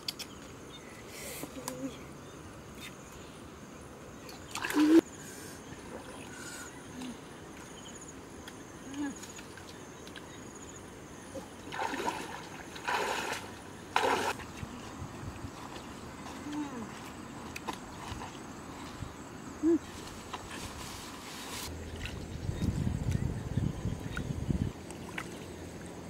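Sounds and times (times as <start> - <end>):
faint insect chirring: 0.0 - 14.0
water splashing: 4.5 - 5.0, 11.4 - 14.7
splashing steps through water: 11.6 - 14.6.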